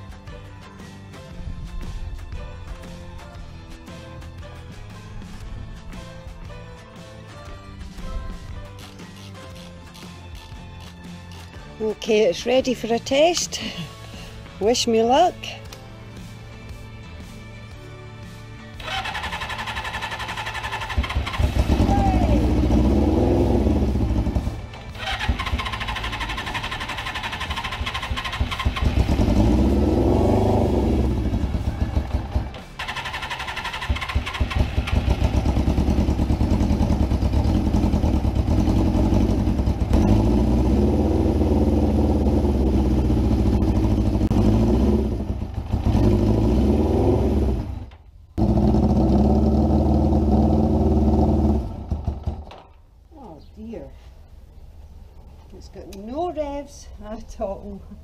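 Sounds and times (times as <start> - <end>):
motorcycle engine revving: 18.8 - 52.7.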